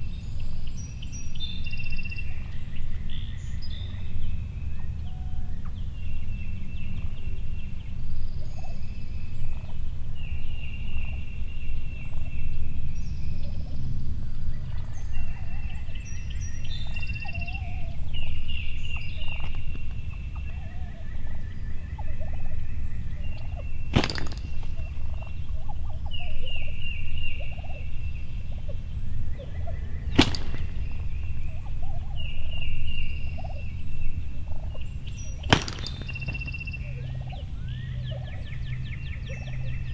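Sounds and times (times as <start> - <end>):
turkeys gobbling: 17.2 - 18.1, 19.1 - 33.7, 34.4 - 38.5
sharp knocks: 23.9 - 24.7, 30.1 - 31.0, 35.4 - 36.6.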